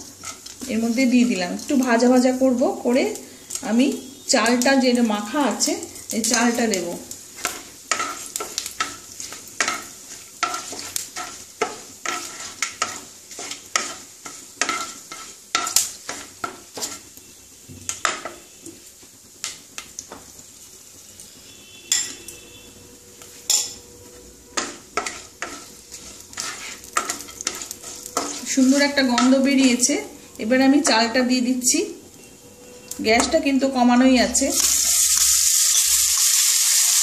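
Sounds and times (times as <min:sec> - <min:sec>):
wooden spatula scraping a wok: 0:00.0 - 0:01.9, 0:07.3 - 0:17.2, 0:23.1 - 0:30.3
spices sizzling in oil: 0:00.0 - 0:37.0.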